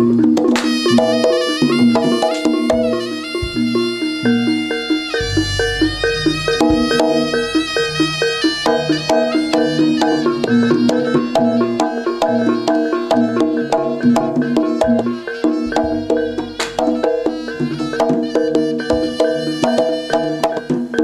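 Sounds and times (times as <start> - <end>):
drum beats: 0.0 - 21.0
metallophones playing melody: 0.0 - 21.0
sharp percussive clicks: 0.2 - 1.4, 11.9 - 19.1.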